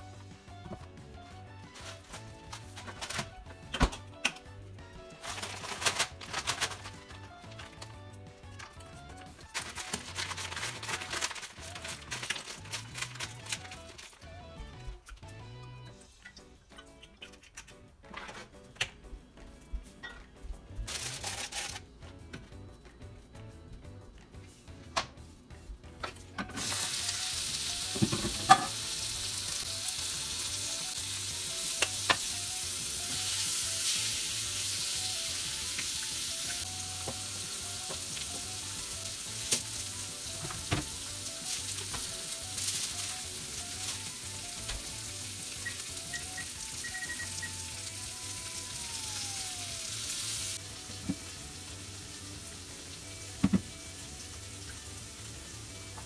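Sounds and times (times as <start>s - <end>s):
meat sizzling in a frying pan: 26.6s - 56.0s.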